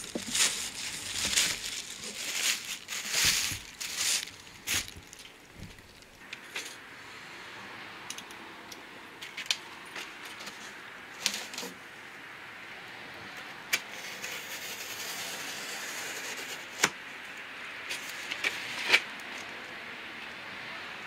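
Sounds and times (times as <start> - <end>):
cardboard box being handled: 0.0 - 5.9
plastic wrapping rustling: 0.0 - 6.2.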